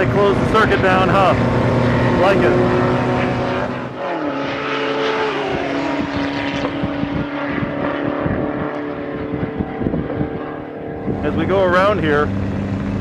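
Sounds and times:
vehicle engine running: 0.0 - 13.0
wind noise on microphone: 5.0 - 13.0.

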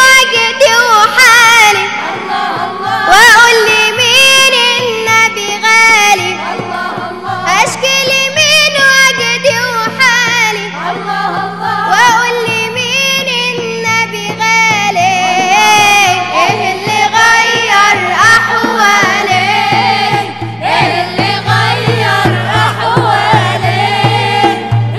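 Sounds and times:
man and woman singing: 0.0 - 24.9
low drum beat: 15.9 - 24.9.

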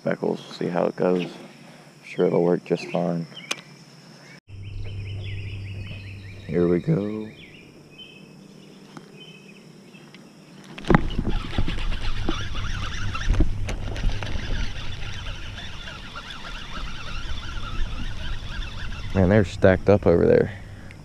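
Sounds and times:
fishing reel gears whirring: 11.0 - 20.1.

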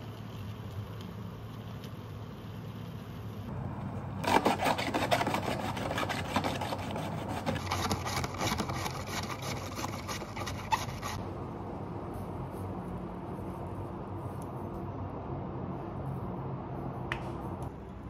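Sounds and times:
cabbage rasping across slicer blade: 4.2 - 11.2.

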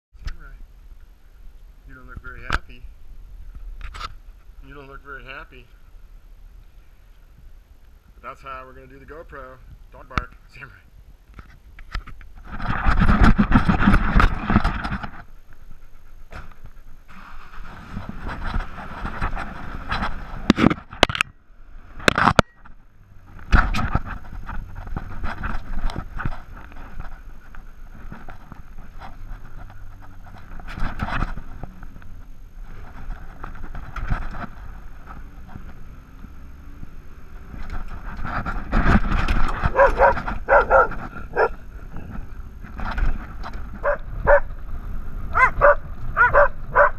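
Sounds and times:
dog barking: 39.7 - 41.6, 43.8 - 44.5, 45.4 - 46.9
dog whining: 39.7 - 41.6.

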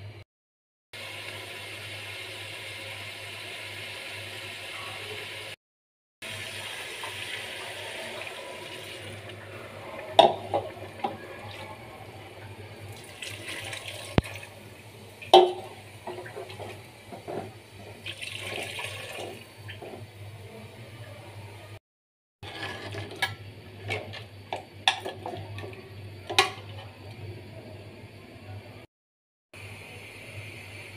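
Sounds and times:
water pouring and splashing: 12.9 - 14.6, 15.3 - 20.1
metal spatula clattering on pot: 24.9 - 26.9.

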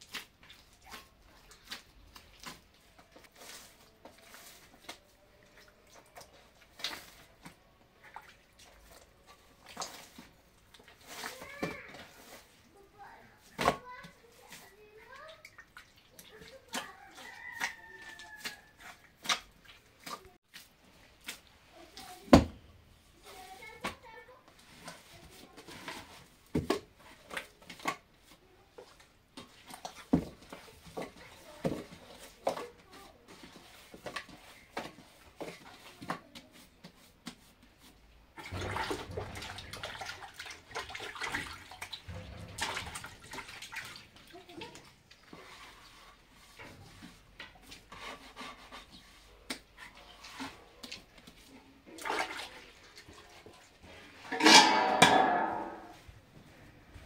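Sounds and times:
objects knocking and clattering: 38.4 - 44.8, 54.2 - 56.4
water running: 38.4 - 46.7.

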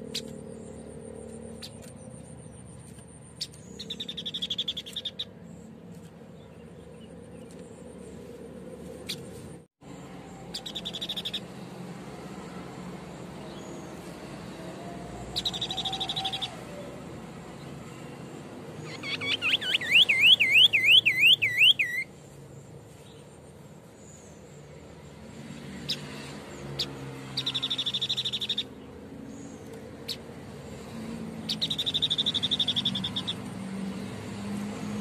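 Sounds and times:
high bird trills: 0.0 - 5.5, 10.4 - 11.6, 15.2 - 17.0, 17.6 - 22.1, 26.7 - 30.2, 31.4 - 33.4
bird whistled song: 3.4 - 5.3, 10.5 - 11.5, 15.2 - 16.9, 18.8 - 22.1, 27.4 - 28.8, 31.5 - 33.4.

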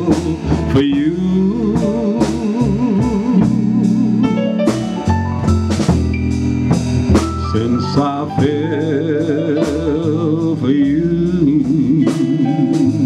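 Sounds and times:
person singing: 0.0 - 4.8, 7.4 - 13.0
live band playing slow blues: 0.0 - 13.0.

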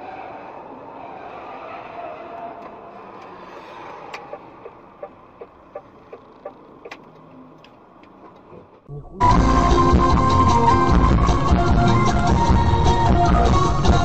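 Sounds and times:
road noise inside a car: 0.0 - 14.0
turn signal ticking: 4.1 - 8.9
loud music: 9.2 - 14.0.

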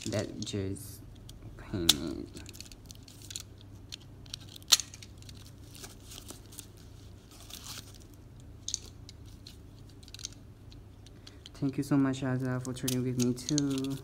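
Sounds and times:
plastic wrap crinkling: 2.1 - 10.4.

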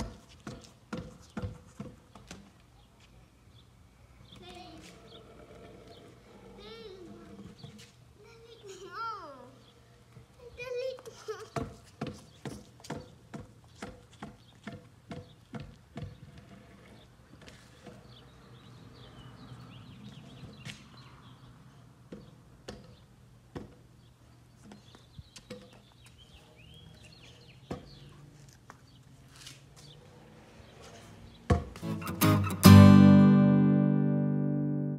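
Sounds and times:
small birds chirping: 23.9 - 31.5.

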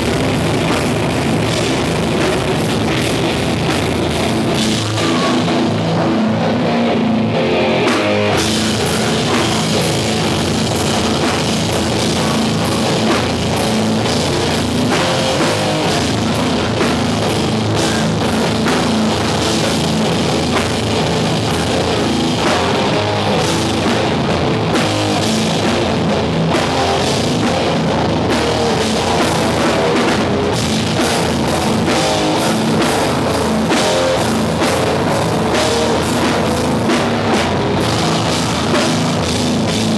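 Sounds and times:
punk band playing live: 0.0 - 39.9.

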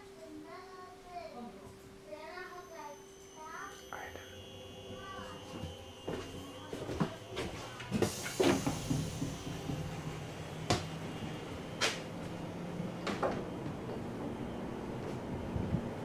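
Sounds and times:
train running hum: 1.7 - 16.0
sharp knocks and clattering: 8.0 - 10.9.

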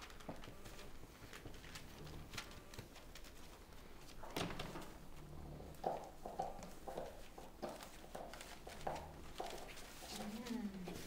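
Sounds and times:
puppy scuffling on floor: 5.9 - 11.0.

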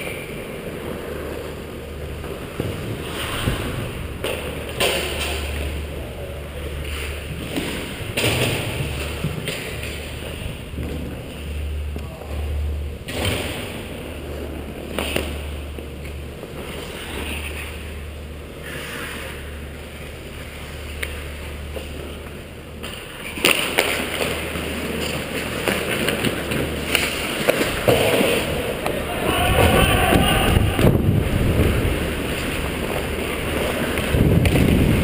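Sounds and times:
ice skate blades scraping: 0.0 - 6.0, 14.2 - 22.2, 22.8 - 29.9, 30.8 - 35.0
steady low hum: 0.0 - 35.0.

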